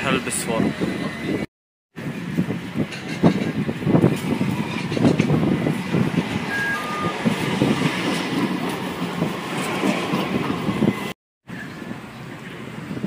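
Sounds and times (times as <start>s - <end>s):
street noise: 0.0s - 13.0s
tram rumbling on rails: 0.0s - 13.0s
short beeps: 6.5s - 7.2s.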